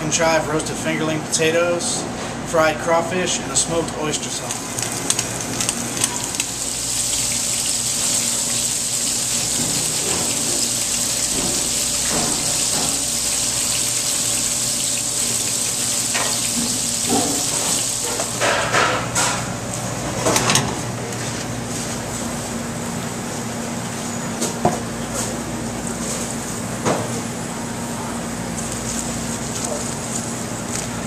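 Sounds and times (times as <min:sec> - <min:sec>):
fish frying in oil: 0:04.5 - 0:18.5.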